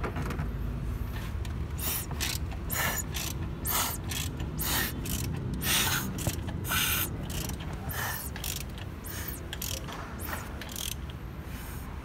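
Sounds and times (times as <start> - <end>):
ratchet wrench clicking: 1.7 - 11.2.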